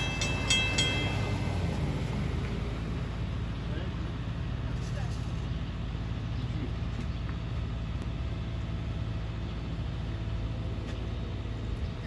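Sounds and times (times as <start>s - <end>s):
vehicle engines idling: 0.0s - 12.0s.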